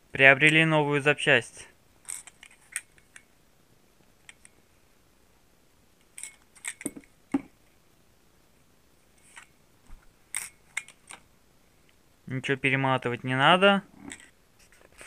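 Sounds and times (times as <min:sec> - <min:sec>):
light clicks and rustles of handling: 0:14.0 - 0:15.0.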